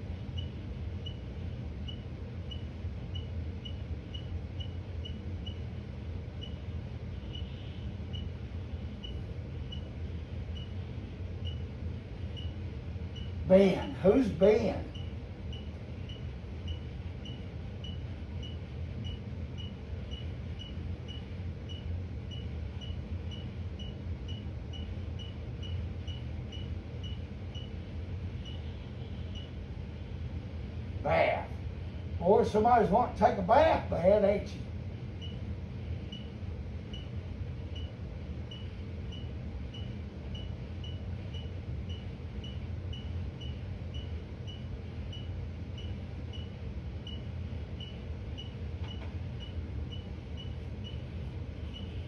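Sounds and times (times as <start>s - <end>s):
steady low hum: 0.0s - 52.0s
faint high-pitched beep: 7.2s - 8.3s, 28.4s - 29.6s, 36.0s - 36.3s, 51.6s - 52.0s.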